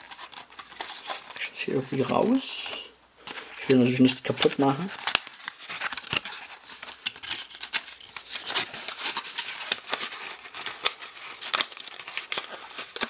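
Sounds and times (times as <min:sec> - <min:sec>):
cardboard packaging rustling: 0:00.0 - 0:13.0.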